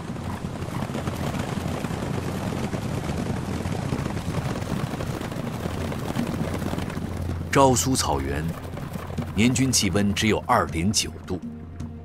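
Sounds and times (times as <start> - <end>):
horses galloping through snow: 0.0 - 11.0.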